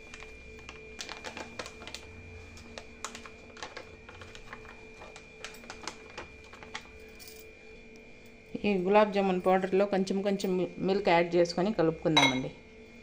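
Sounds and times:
plastic packet crinkling: 0:00.0 - 0:07.0.

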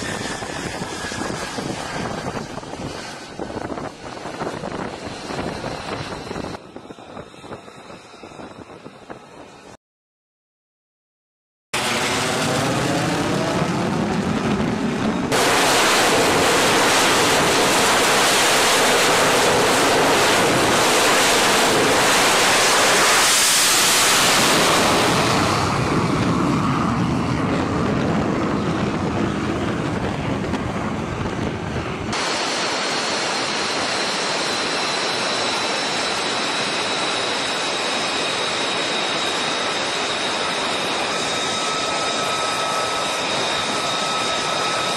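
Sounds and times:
jet engine whining while taxiing: 0:00.0 - 0:09.8, 0:11.8 - 0:44.9
jet taking off roar: 0:00.0 - 0:09.8, 0:11.8 - 0:44.9
jet rushing past: 0:11.8 - 0:44.9.

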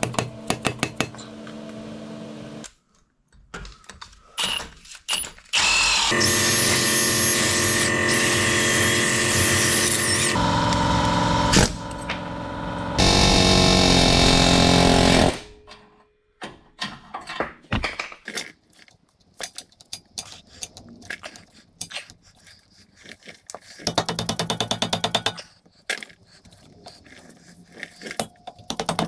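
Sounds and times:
power tool running: 0:05.6 - 0:15.5.

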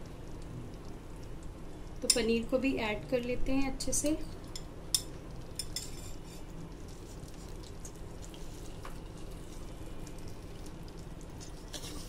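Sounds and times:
gravy sizzling in a pan: 0:00.0 - 0:12.0
clicks and scrapes of stirring: 0:04.5 - 0:10.7, 0:11.3 - 0:12.0.

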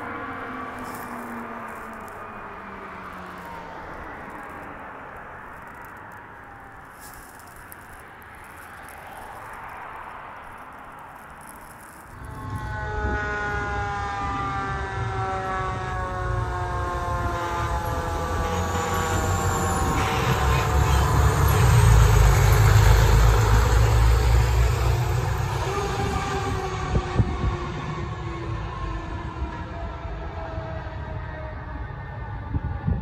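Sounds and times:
fire truck siren: 0:00.0 - 0:07.8, 0:12.1 - 0:33.0
diesel engine rumbling: 0:10.4 - 0:28.7.

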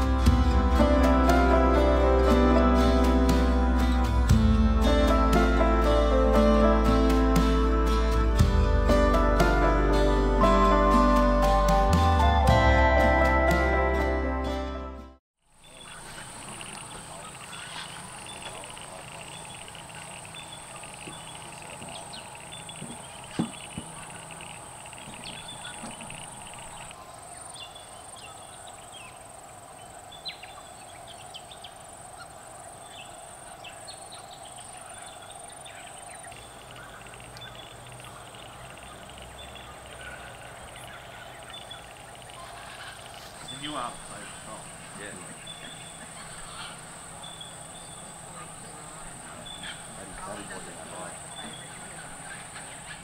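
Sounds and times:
short bird calls: 0:15.6 - 0:27.0, 0:28.0 - 0:53.0.

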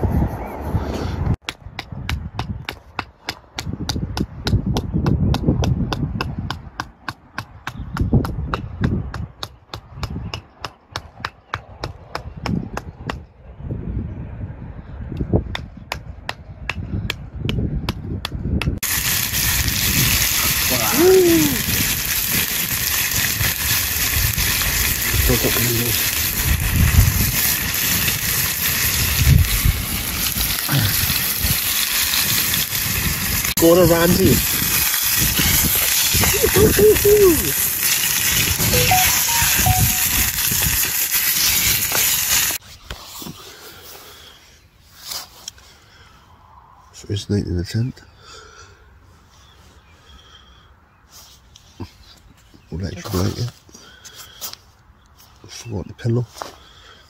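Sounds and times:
wind rumble on microphone: 0:00.0 - 0:02.8, 0:03.5 - 0:38.8
food sizzling in frying pan: 0:18.8 - 0:42.6
loud steady hiss: 0:18.8 - 0:42.6.

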